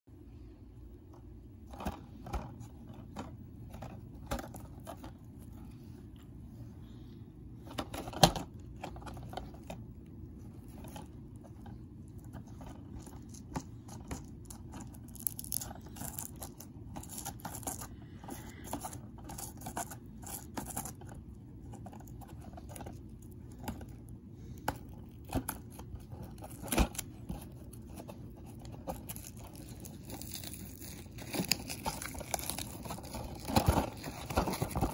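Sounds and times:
shrink-wrap crinkling: 7.7 - 34.9.

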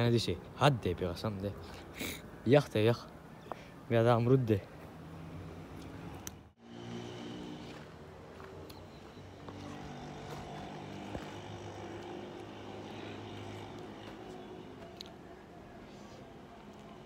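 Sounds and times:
distant engine drone: 6.6 - 14.8.

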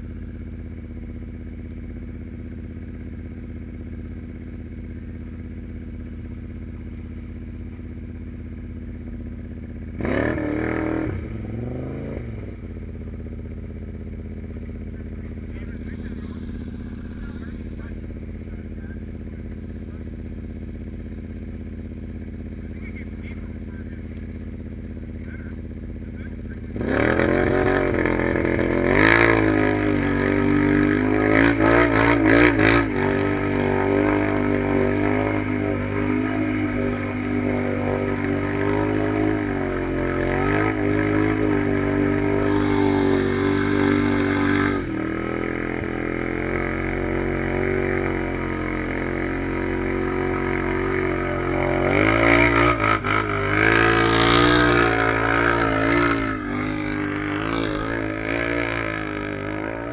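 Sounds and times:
atv engine revving: 0.0 - 59.9
tyres churning through mud: 26.8 - 59.9.

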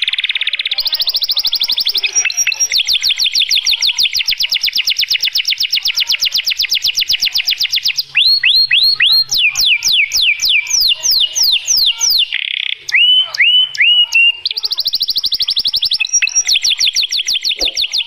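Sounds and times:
canary trilling: 0.0 - 18.0.

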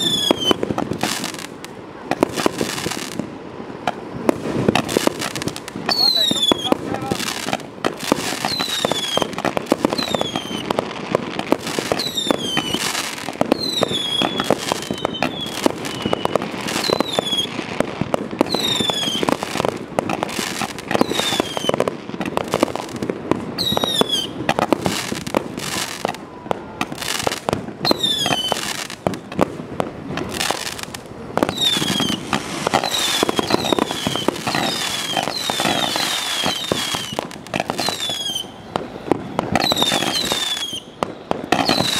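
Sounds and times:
falling firework whistle: 0.0 - 1.4, 5.2 - 7.1, 8.2 - 10.8, 11.6 - 17.6, 18.4 - 19.4, 20.4 - 21.9, 23.6 - 29.4, 30.2 - 41.9.

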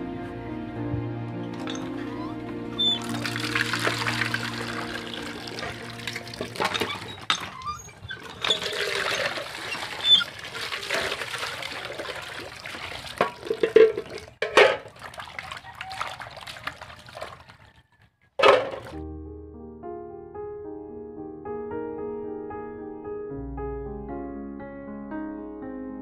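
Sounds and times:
hands splashing water: 1.5 - 7.4, 8.1 - 19.0
water running into a pot: 2.8 - 17.6, 18.4 - 19.0.

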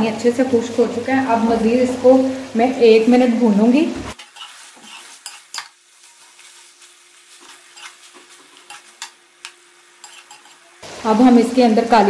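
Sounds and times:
masala sizzling in oil: 0.0 - 12.0
metal ladle scraping a pan: 4.1 - 10.8.

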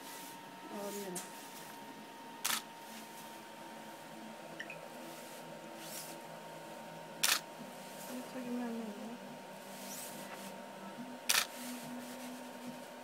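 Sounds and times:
camera shutter clicks: 2.4 - 2.7, 7.2 - 7.4, 11.3 - 11.5.

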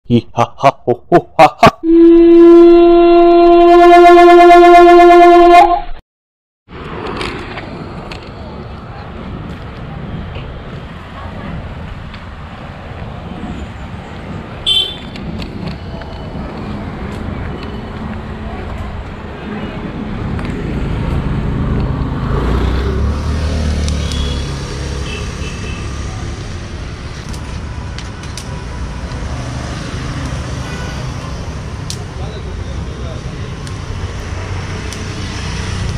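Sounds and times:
long horn blast: 1.8 - 6.0
vehicle engine passing: 18.2 - 35.9.

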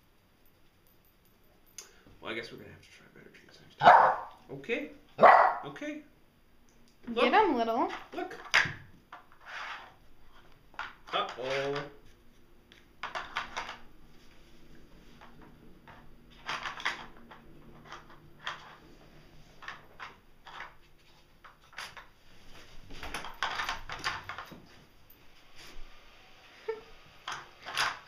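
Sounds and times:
plastic toy pieces clattering: 13.0 - 13.9, 16.3 - 18.8, 19.6 - 20.8, 23.0 - 24.5, 27.2 - 28.0.

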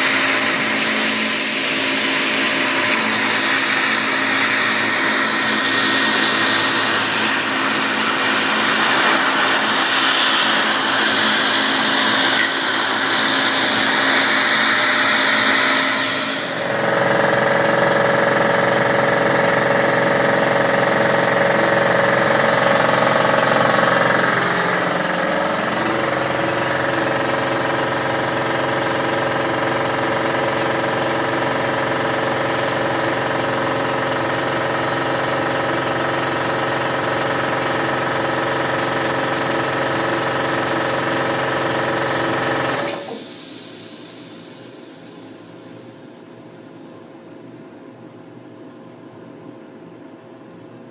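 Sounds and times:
milling spindle cutting hiss: 0.0 - 16.7
machine whirring hum: 0.0 - 50.9.

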